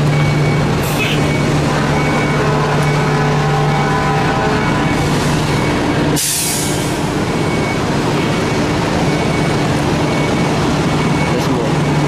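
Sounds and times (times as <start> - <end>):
diesel engine idling: 0.0 - 12.0
air brakes hissing: 6.2 - 7.1.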